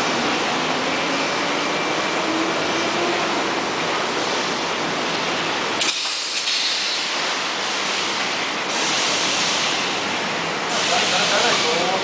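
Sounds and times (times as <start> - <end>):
production line hissing: 10.6 - 12.0.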